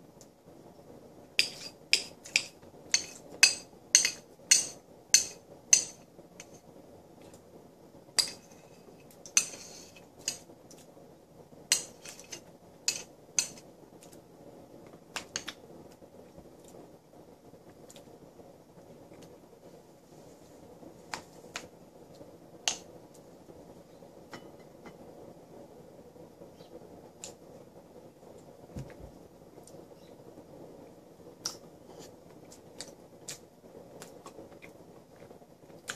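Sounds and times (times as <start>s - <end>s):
metal spoon clinking on a bowl: 1.4s - 6.0s
spoon scraping a bowl: 1.4s - 6.6s, 8.2s - 10.4s, 11.7s - 13.6s.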